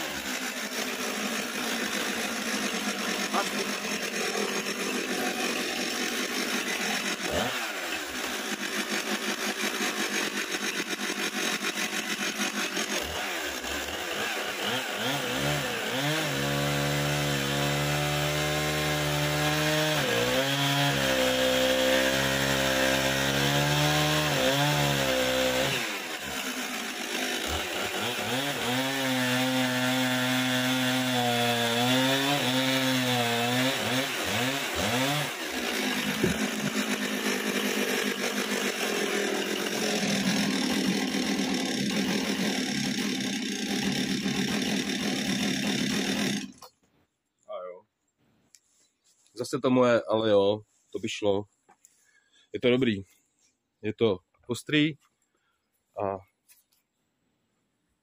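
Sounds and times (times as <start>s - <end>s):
chainsaw cutting log: 0.0s - 46.7s.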